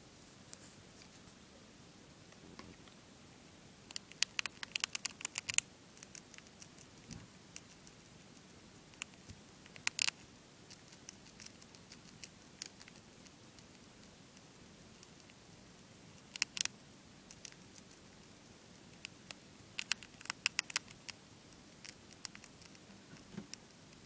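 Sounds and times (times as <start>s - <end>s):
hamster crunching a cracker: 3.9s - 8.0s, 8.9s - 14.2s, 16.2s - 18.3s, 18.9s - 23.3s.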